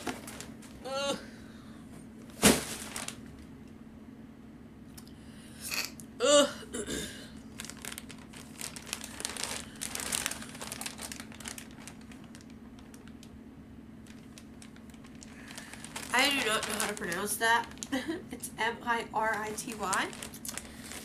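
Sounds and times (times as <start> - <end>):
packaging crinkling: 0.0 - 0.8, 2.3 - 3.4, 7.4 - 13.4, 14.0 - 18.2, 19.2 - 21.0.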